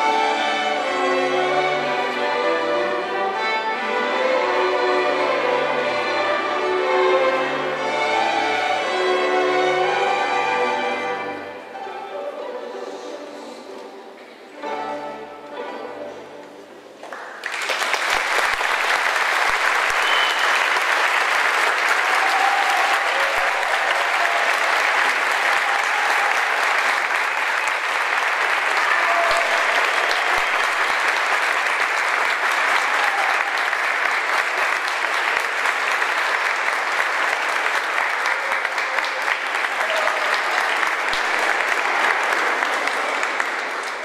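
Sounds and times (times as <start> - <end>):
orchestra string chords: 0.0 - 16.9
audience applause: 17.0 - 44.0.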